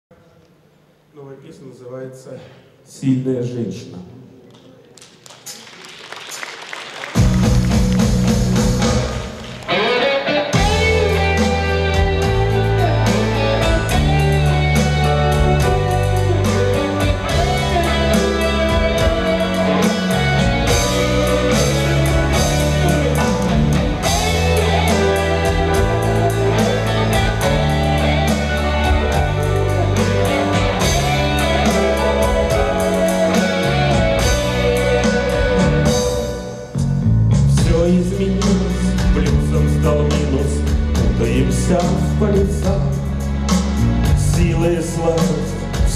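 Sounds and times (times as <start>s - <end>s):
drums: 5.4s - 45.9s
acoustic and electric guitars: 7.2s - 45.9s
low bass notes: 10.6s - 45.9s.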